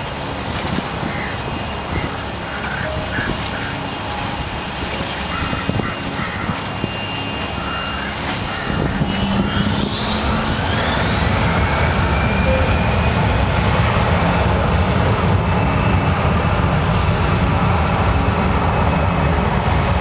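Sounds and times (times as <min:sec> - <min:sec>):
jet engine rumble: 0:00.0 - 0:20.0
jet engine whine: 0:00.0 - 0:20.0.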